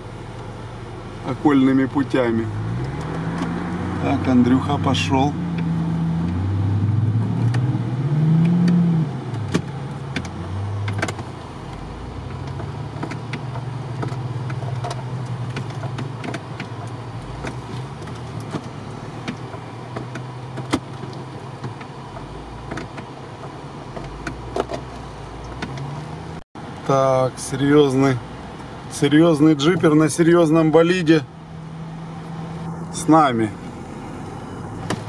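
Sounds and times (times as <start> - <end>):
engine running under load: 0.0 - 26.4
sharp knocks and clicks: 8.4 - 11.3, 12.3 - 26.0.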